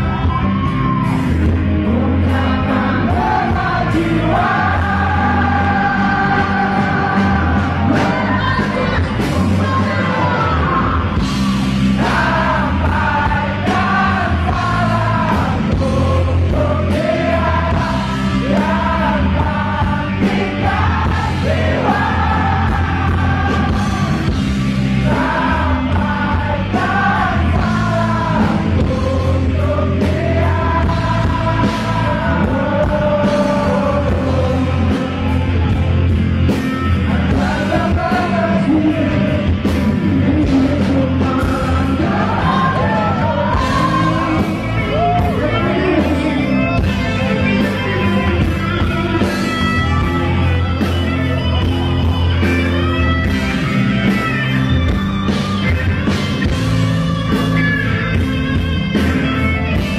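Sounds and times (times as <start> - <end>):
bending lead melody line: 0.0 - 59.9
rock band playing loudly: 0.0 - 59.9.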